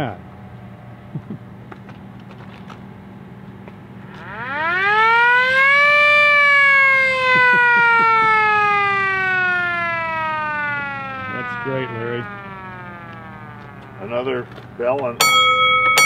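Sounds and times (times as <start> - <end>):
hand-crank siren wailing: 4.0 - 16.0.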